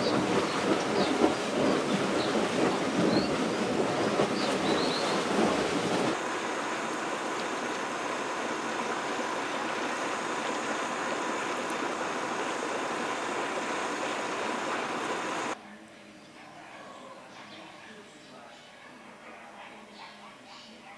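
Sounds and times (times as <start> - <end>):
hot spring bubbling: 0.0 - 15.6
steam vent hissing: 0.0 - 15.6.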